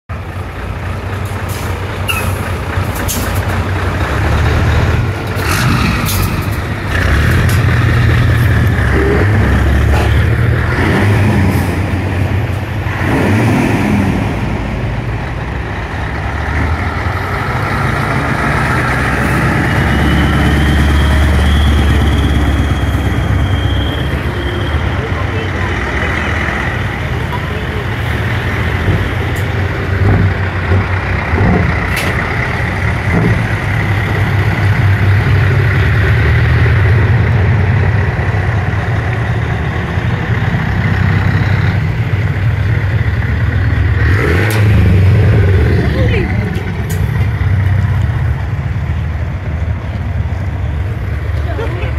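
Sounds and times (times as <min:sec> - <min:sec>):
truck diesel engines idling and revving: 0:00.1 - 0:51.9.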